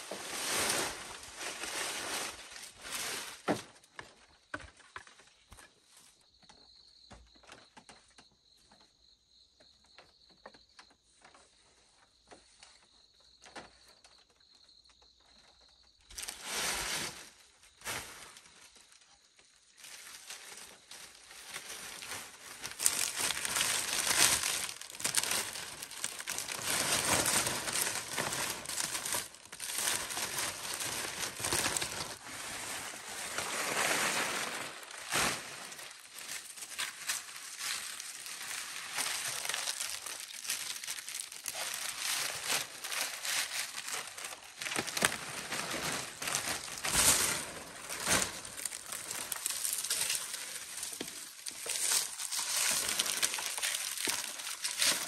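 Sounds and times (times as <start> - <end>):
rustling and crinkling: 0.0 - 9.0, 9.6 - 55.0.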